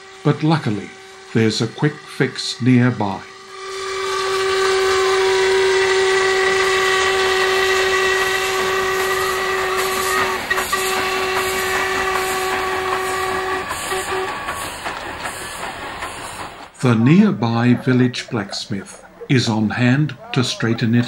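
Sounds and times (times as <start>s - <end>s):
steam locomotive whistle: 0.0s - 18.2s
train coaches clattering: 2.8s - 21.0s.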